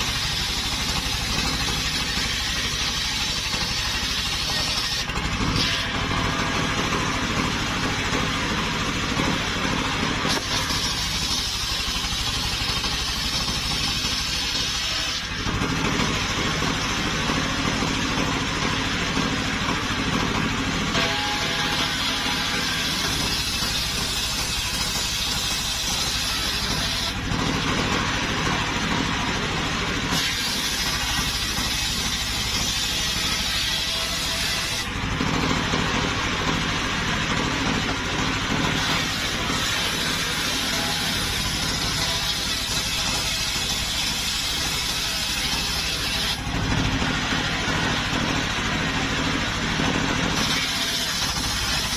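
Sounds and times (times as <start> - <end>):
saw blade cutting through wood: 0.0 - 51.9
sawmill engine droning: 0.0 - 51.9.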